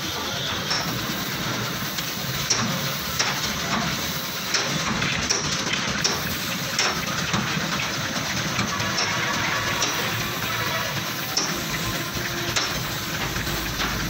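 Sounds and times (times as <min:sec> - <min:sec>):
paint spray gun hissing: 0:05.9 - 0:07.0, 0:11.0 - 0:14.0.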